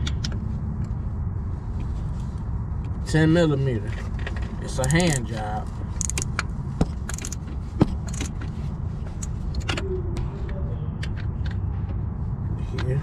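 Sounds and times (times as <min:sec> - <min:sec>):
ratchet clicks: 0:04.8 - 0:05.4, 0:06.0 - 0:08.4
low rumble: 0:05.6 - 0:12.8.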